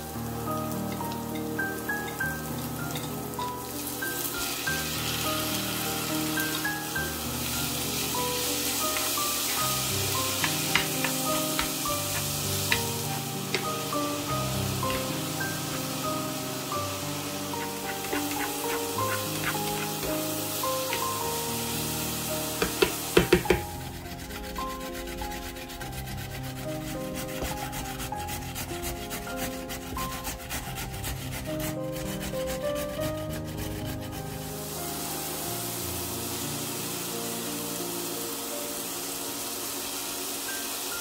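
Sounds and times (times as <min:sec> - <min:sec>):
onions sizzling in frying pan: 0:00.0 - 0:28.7, 0:32.8 - 0:41.0
background music: 0:00.0 - 0:41.0
carrot rasping on grater: 0:08.6 - 0:16.3, 0:17.3 - 0:21.2, 0:23.4 - 0:34.5
sharp knocks: 0:22.6 - 0:23.7.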